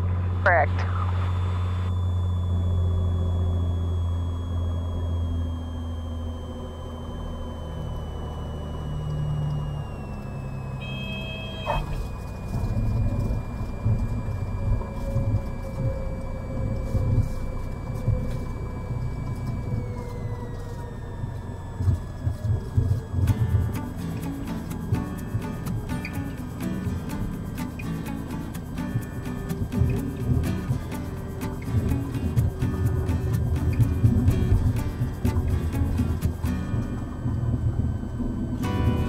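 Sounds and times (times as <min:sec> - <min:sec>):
airplane engine and propeller whine: 0:00.0 - 0:39.0
tire chirp: 0:00.0 - 0:39.0
tires rolling on runway: 0:01.9 - 0:39.0
short high tone: 0:10.7 - 0:12.2.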